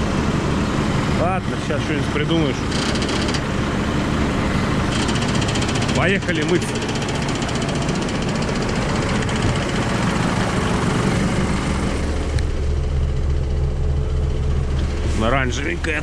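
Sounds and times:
diesel engine idling: 0.0s - 16.0s
engine drumming rattle: 0.0s - 16.0s.

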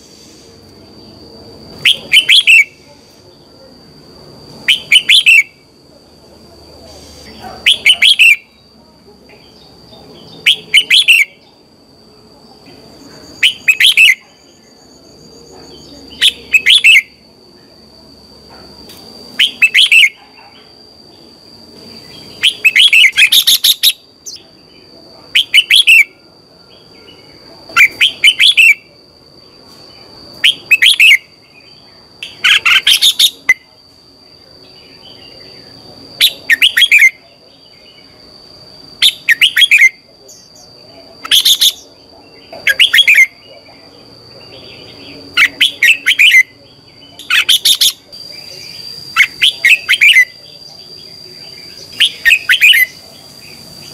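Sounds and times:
bird singing whistled phrases: 1.8s - 2.8s, 4.7s - 5.6s, 7.7s - 8.6s, 10.3s - 11.4s, 13.4s - 14.6s, 15.8s - 17.2s, 19.4s - 20.2s, 25.4s - 26.1s, 27.8s - 28.9s, 30.4s - 31.3s, 36.2s - 37.2s, 39.0s - 40.0s, 42.7s - 43.4s, 45.4s - 48.0s, 52.0s - 53.0s.

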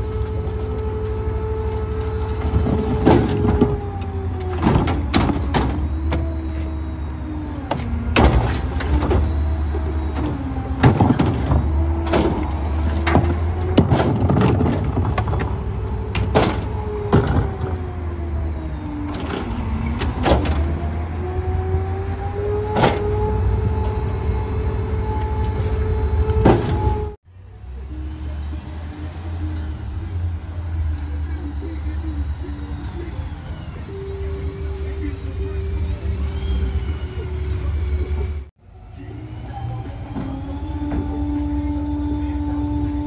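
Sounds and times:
bins clanking and banging: 0.0s - 6.6s, 7.7s - 18.0s, 19.1s - 21.0s, 22.5s - 24.2s, 25.0s - 27.2s
garbage truck engine hum: 0.0s - 43.0s
hydraulic packer whine: 0.0s - 43.0s.

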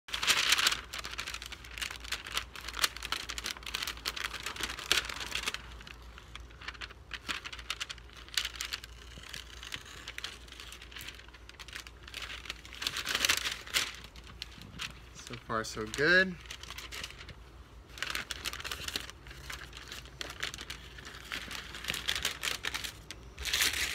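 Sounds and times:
masking paper peeled and crinkling: 0.1s - 23.9s.

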